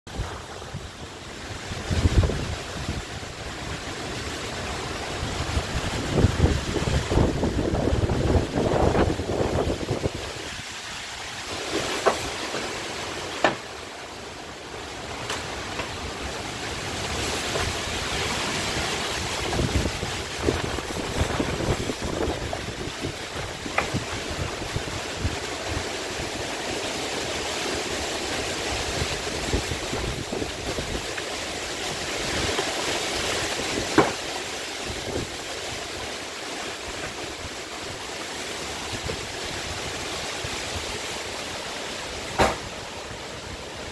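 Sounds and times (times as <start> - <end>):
driving rain: 0.1 - 43.9
strong wind through trees: 0.1 - 43.9
sharp knocks: 13.4 - 13.6, 33.9 - 34.2, 42.4 - 42.7.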